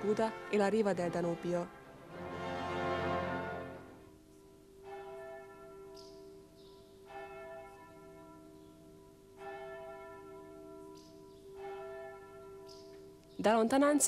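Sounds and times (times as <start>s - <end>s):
church bell tolling: 3.6s - 13.6s.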